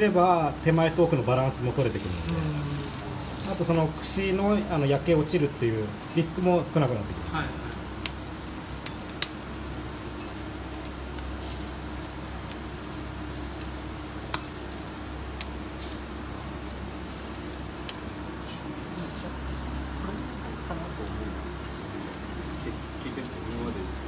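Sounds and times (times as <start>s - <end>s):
skewers sizzling on grill: 0.0s - 24.0s
low hum: 6.2s - 8.9s.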